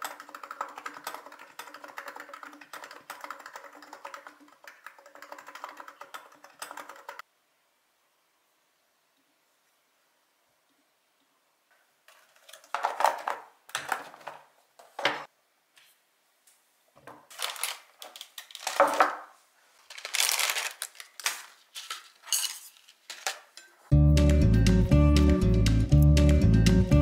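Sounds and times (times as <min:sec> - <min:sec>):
tableware clattering on table: 0:22.2 - 0:23.8.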